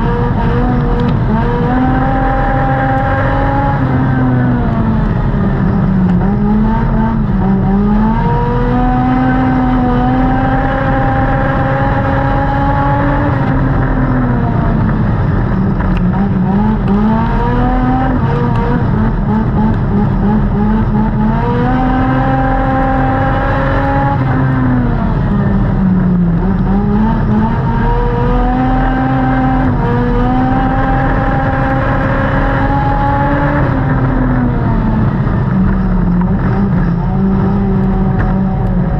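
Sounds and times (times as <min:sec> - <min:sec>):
race car engine running hard: 0:00.0 - 0:38.9.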